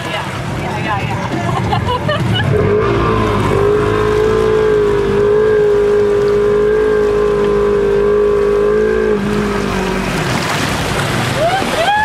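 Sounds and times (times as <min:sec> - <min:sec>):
water rushing and splashing: 0:00.0 - 0:12.0
utility vehicle engine high revs: 0:02.0 - 0:11.8.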